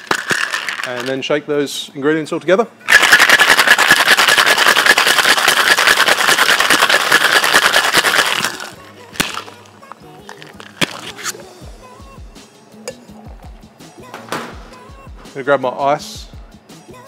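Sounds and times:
ice rattling in cocktail shaker: 0.0 - 1.2, 2.9 - 9.6.

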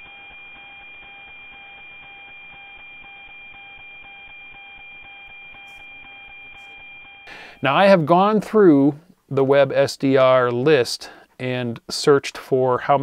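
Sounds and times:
radio whistle with ticking beat: 0.0 - 7.7.

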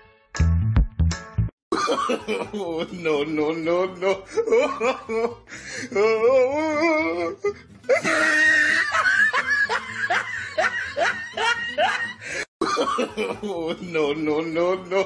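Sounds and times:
person laughing hard: 1.7 - 3.1, 4.0 - 5.4, 7.4 - 13.9.

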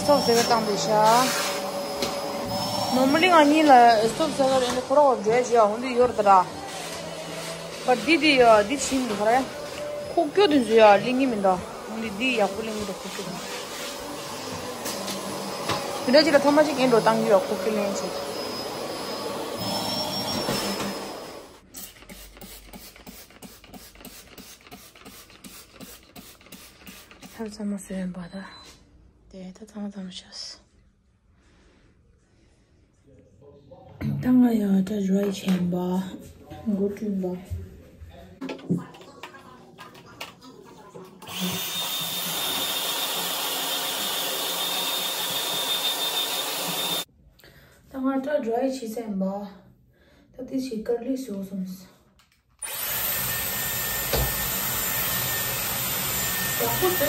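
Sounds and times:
hair dryer running: 0.0 - 21.6, 41.2 - 47.1, 52.6 - 57.0
vacuum cleaner whine: 0.0 - 21.6, 41.2 - 47.1, 52.6 - 57.0.

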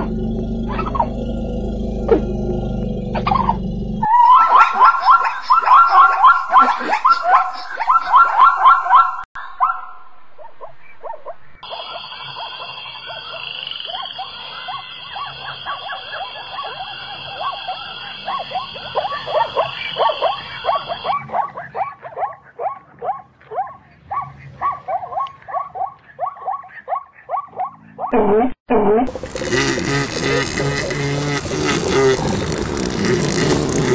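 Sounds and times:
zebra barking yelps: 0.7 - 1.1, 3.2 - 28.4
high-pitched drone: 11.6 - 21.2.

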